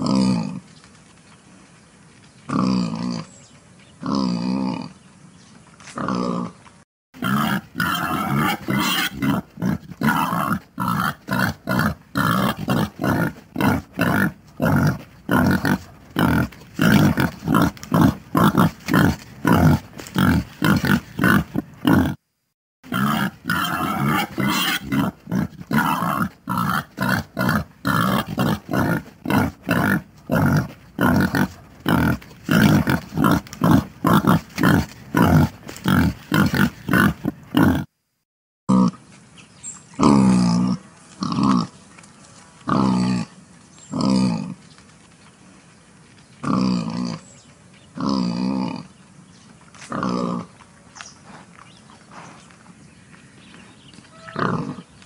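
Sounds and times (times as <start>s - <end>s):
wild boar grunting: 7.2s - 22.2s, 22.9s - 37.9s, 40.0s - 41.7s, 48.0s - 48.9s, 49.9s - 50.6s, 54.2s - 54.9s.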